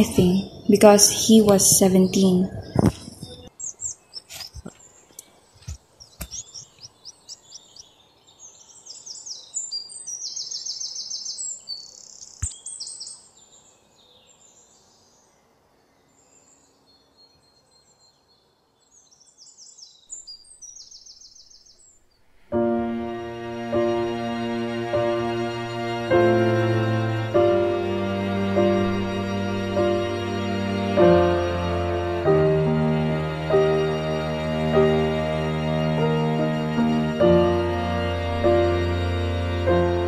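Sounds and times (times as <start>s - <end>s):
birds chirping and trilling: 0.0s - 22.6s, 25.0s - 40.0s
outdoor ambience: 0.0s - 40.0s
background music with held notes: 22.5s - 40.0s.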